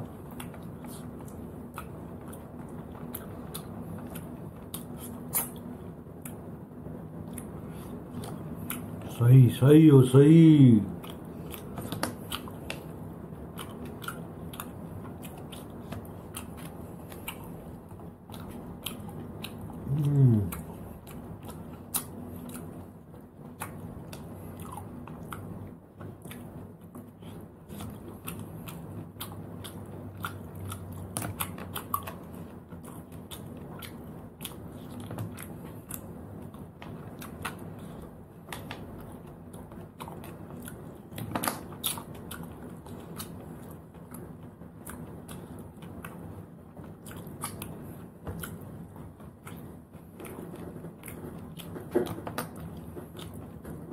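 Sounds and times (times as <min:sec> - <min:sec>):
chewing: 0:00.0 - 0:06.6, 0:07.2 - 0:09.2, 0:10.9 - 0:53.9
falling throat sound: 0:19.8 - 0:20.6.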